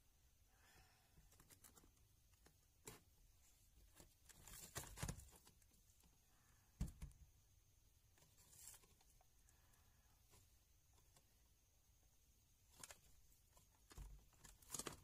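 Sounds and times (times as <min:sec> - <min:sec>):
plastic appliances rustling: 0:03.8 - 0:05.6, 0:12.7 - 0:15.0.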